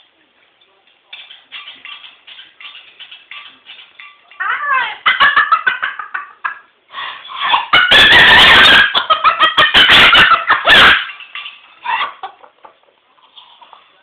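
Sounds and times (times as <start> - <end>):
cockatoo laughing: 4.5 - 13.0.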